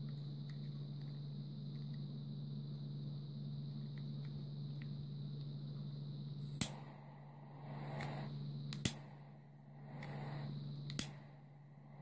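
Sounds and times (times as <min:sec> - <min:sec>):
low hum: 0:00.0 - 0:12.0
gas hissing: 0:06.0 - 0:12.0
lighter handling ticks: 0:07.9 - 0:09.1, 0:10.9 - 0:11.3
torch igniter click: 0:08.0 - 0:09.1, 0:10.9 - 0:11.3.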